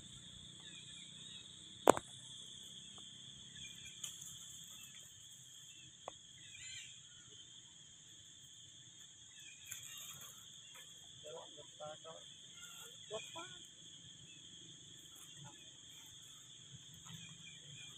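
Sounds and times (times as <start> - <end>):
insects chirring: 0.0 - 17.9.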